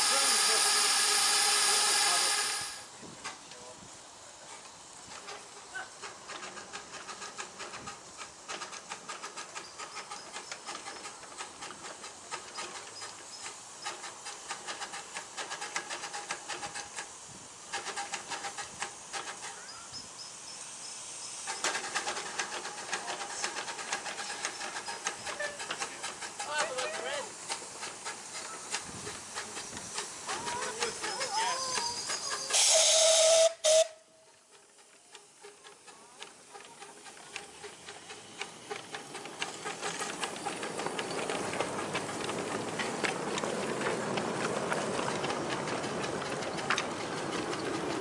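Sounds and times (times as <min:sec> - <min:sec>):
steam locomotive hissing: 0:00.0 - 0:48.0
rapid irregular ticking: 0:21.5 - 0:32.5, 0:34.5 - 0:48.0.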